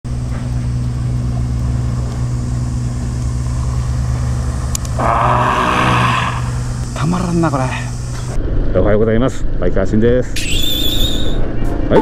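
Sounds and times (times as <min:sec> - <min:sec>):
motorcycle engine running: 0:00.1 - 0:08.4
loud hissing rush: 0:01.0 - 0:08.4.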